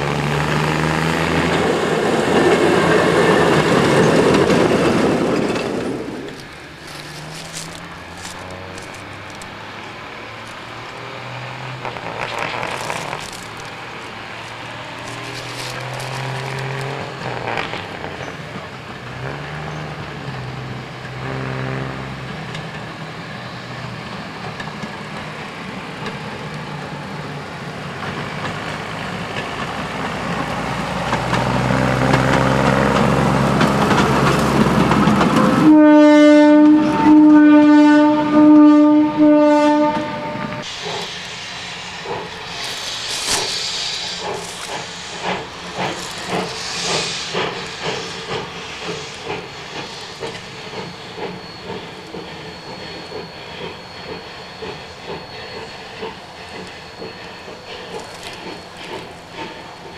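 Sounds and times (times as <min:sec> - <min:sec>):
rail car engine running: 0:00.0 - 0:59.9
rail car horn: 0:21.2 - 0:22.3, 0:35.6 - 0:40.7.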